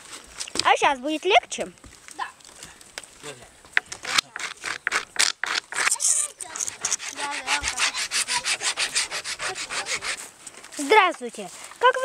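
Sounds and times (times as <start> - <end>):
hand tool rasping on wood: 4.0 - 10.3.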